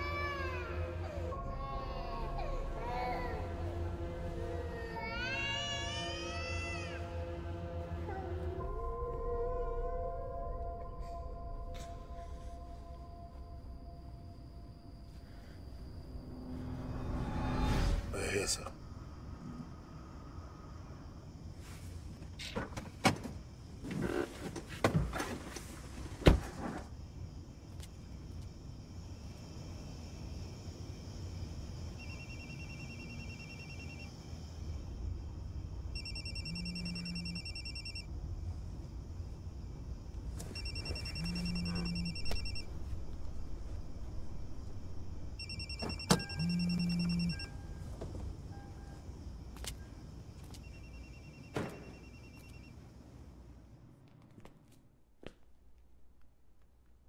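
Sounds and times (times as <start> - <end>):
low background hum: 0.0 - 57.0
telephone ringing: 32.0 - 34.1, 36.0 - 38.1, 40.6 - 42.6, 45.4 - 47.5, 50.6 - 52.8.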